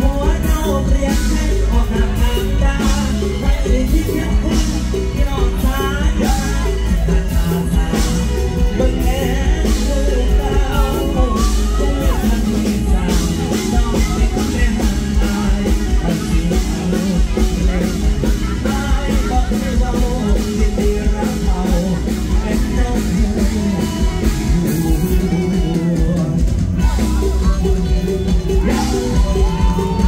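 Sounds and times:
drum kit beat: 0.0 - 30.0
live band music: 0.0 - 30.0
person singing: 0.0 - 30.0.

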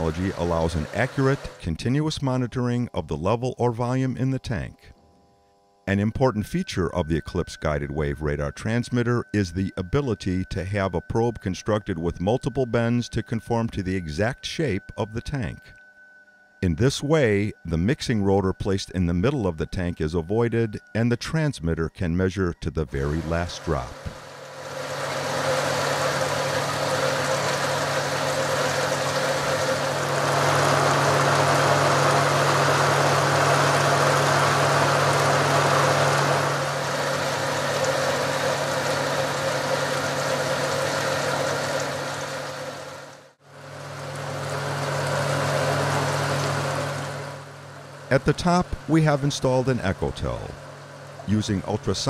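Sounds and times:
water rushing into tank: 0.0 - 1.6, 22.9 - 52.0
machine hum: 0.0 - 20.9, 22.8 - 52.0.

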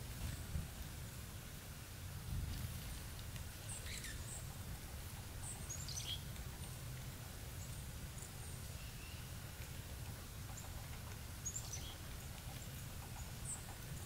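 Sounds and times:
bird chirps: 3.7 - 4.4, 5.4 - 6.3, 11.4 - 12.0.

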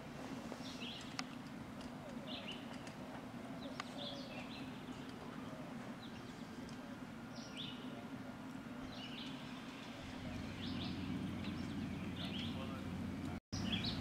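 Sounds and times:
steady low hum: 0.0 - 14.0
bird chirping: 0.6 - 1.3, 2.0 - 2.8, 3.6 - 5.3, 6.0 - 8.0, 8.8 - 14.0.

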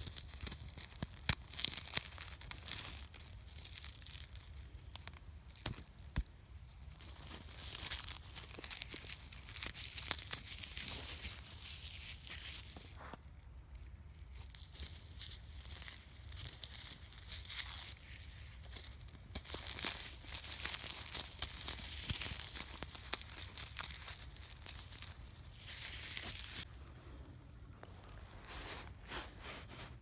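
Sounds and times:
tree bark being torn off: 0.1 - 6.3, 18.6 - 26.6.

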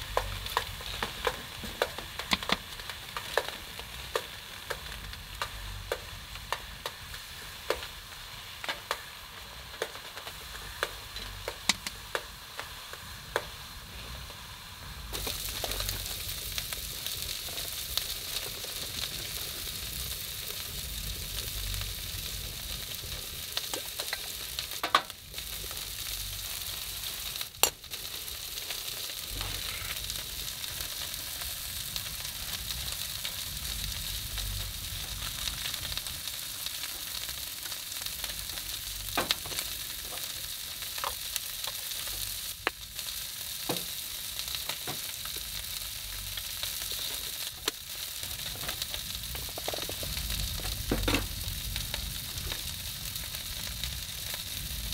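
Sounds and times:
stove sizzling hiss: 0.0 - 54.9
low rumble: 29.2 - 36.4, 48.8 - 54.9.

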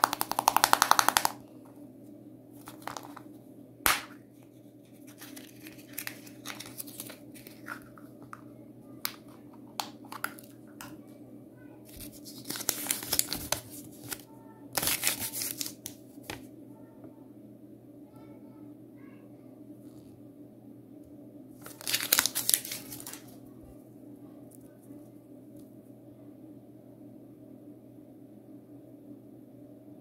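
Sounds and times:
paper crinkling: 4.4 - 8.3, 11.9 - 14.2, 14.8 - 16.4, 21.6 - 23.3.

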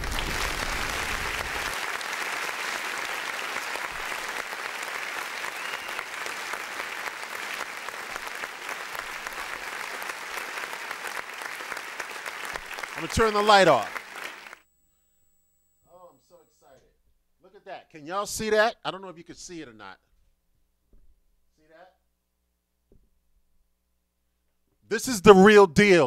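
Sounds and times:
applause: 0.0 - 14.6.

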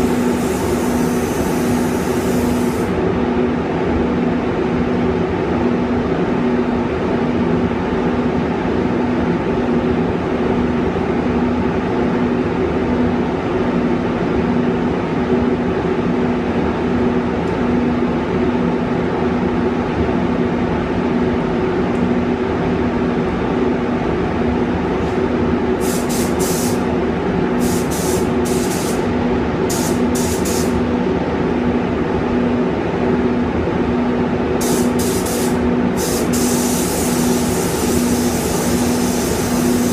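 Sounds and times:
spray gun hissing: 0.0 - 2.9, 25.8 - 26.8, 27.6 - 29.1, 29.7 - 30.8, 34.6 - 39.9
ventilation drone: 0.0 - 39.9.

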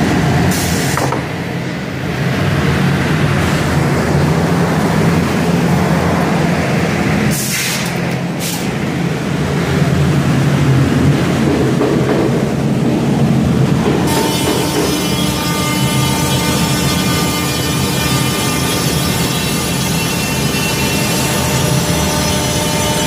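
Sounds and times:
compressed air hiss: 7.3 - 8.8
machine humming: 14.0 - 23.0.

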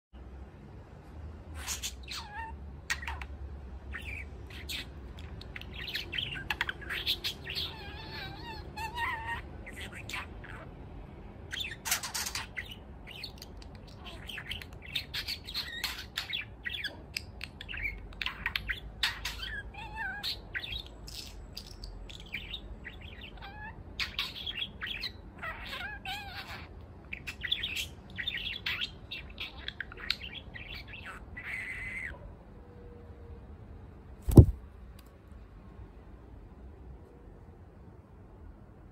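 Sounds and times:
budgerigar warbling and chattering: 1.6 - 10.8, 11.5 - 32.2.

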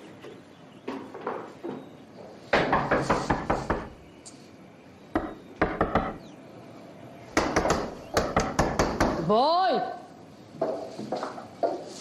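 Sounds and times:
knocking on wooden door: 5.2 - 6.2, 7.4 - 9.3.

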